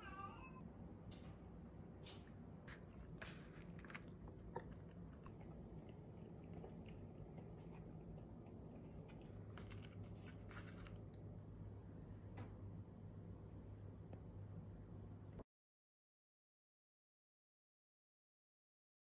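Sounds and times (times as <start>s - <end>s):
low steady hum: 0.0s - 15.4s
soft chewing: 2.0s - 11.4s.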